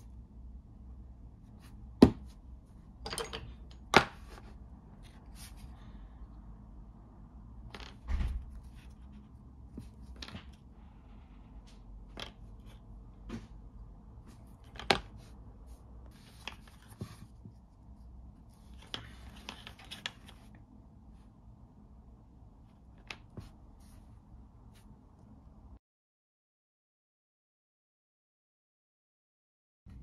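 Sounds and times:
rustling and sliding: 0:04.2 - 0:05.8, 0:14.2 - 0:21.3.

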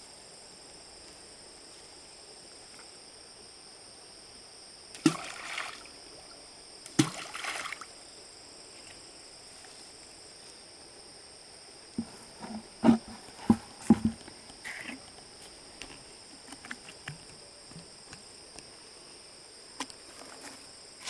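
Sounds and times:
high insect whine: 0:00.0 - 0:21.0
splashes in water: 0:05.0 - 0:05.9, 0:06.9 - 0:07.9
knocks and thumps: 0:12.0 - 0:15.0.

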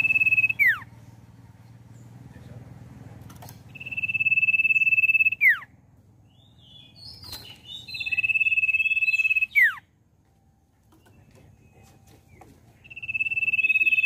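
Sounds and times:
high bird chirps: 0:00.0 - 0:00.9, 0:03.6 - 0:10.0, 0:10.9 - 0:14.0
wings fluttering: 0:07.0 - 0:07.9.

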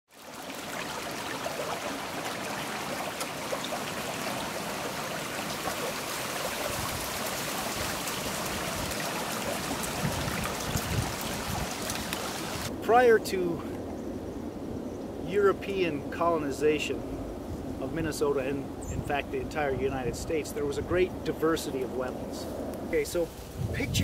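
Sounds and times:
water trickling: 0:00.1 - 0:12.7
small splashing ticks: 0:00.2 - 0:12.7.

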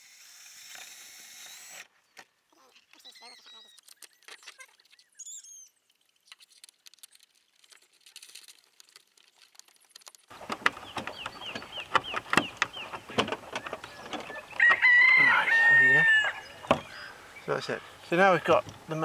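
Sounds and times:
birds chirping: 0:01.9 - 0:06.4, 0:10.3 - 0:19.0
rooster crowing: 0:14.5 - 0:16.6.

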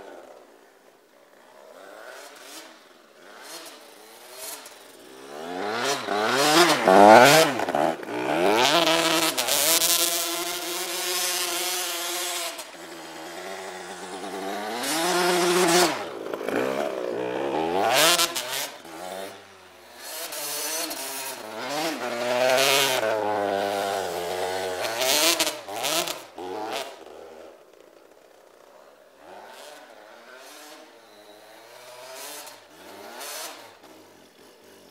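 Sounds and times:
dirt bike engine revving: 0:01.3 - 0:27.6, 0:29.2 - 0:34.9.

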